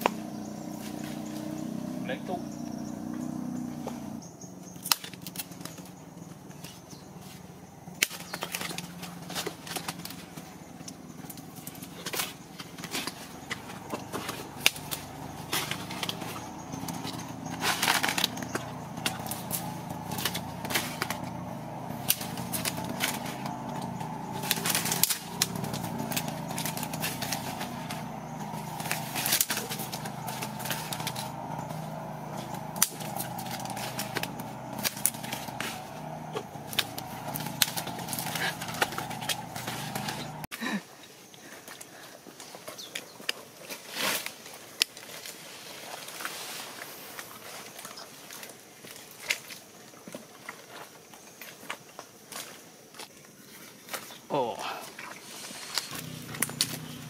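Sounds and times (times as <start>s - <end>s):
twigs snapping: 4.6s - 6.8s, 7.9s - 40.5s, 55.0s - 57.0s
leafy rustling: 4.7s - 40.5s, 41.5s - 57.0s
low background hum: 5.4s - 40.5s.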